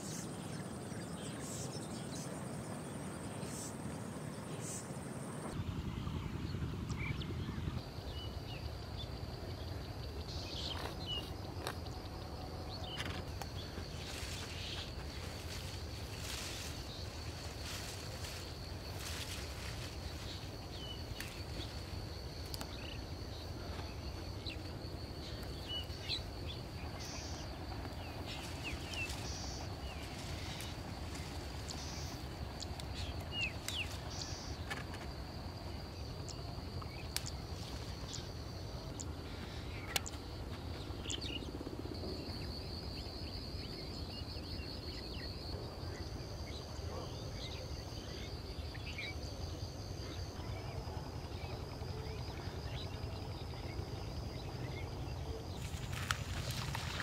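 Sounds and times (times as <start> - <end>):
steady low rumble: 0.3 - 10.6
birds chirping: 6.2 - 34.9
high insect buzz: 9.9 - 41.5, 55.5 - 57.0.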